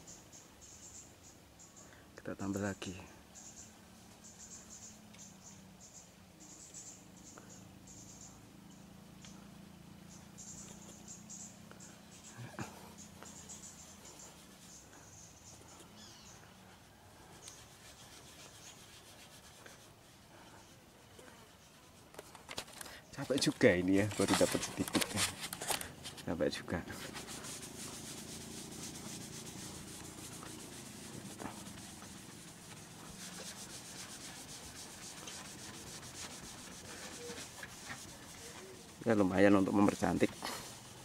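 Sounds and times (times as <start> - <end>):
fingertip rubbing car paint: 10.5 - 26.1, 26.8 - 41.0.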